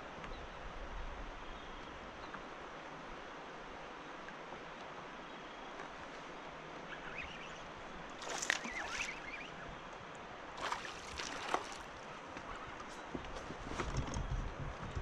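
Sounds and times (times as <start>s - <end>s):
wind and water rushing: 0.0s - 15.0s.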